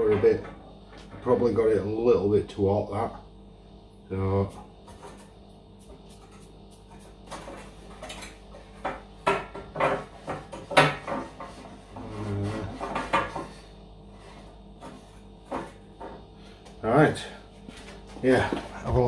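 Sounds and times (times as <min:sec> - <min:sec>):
objects knocking and clattering: 0:07.2 - 0:13.6, 0:14.8 - 0:16.3.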